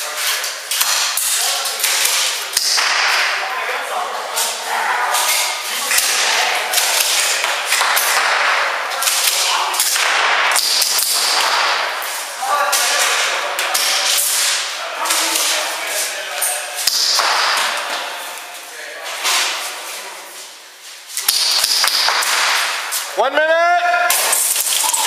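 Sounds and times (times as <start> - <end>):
airsoft guns firing: 6.1 - 12.0, 21.2 - 22.8.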